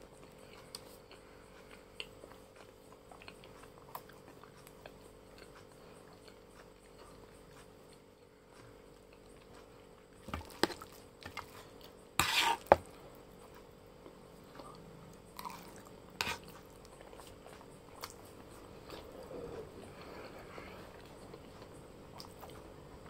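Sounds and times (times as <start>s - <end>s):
chewing: 0.2s - 22.7s
metal utensil scraping a plate: 12.2s - 12.8s.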